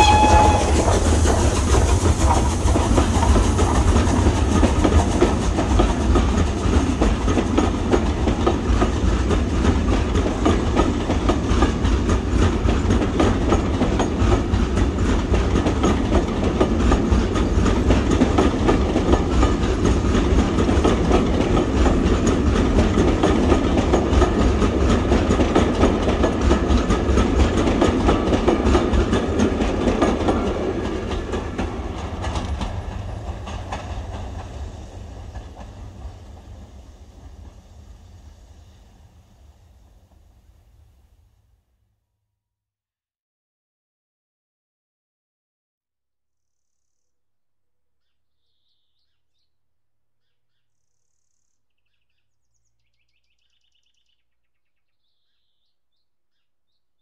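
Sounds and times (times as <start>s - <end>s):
steam train rumbling: 0.0s - 41.3s.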